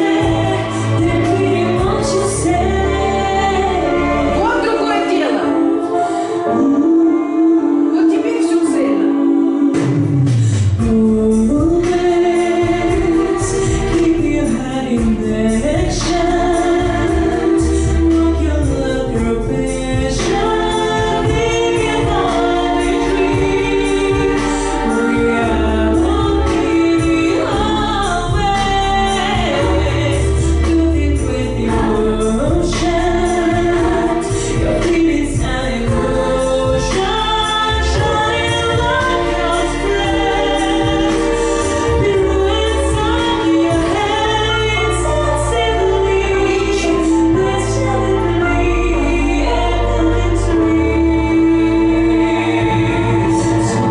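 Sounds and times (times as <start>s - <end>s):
instrumental accompaniment: 0.0s - 53.9s
woman singing: 0.0s - 53.9s.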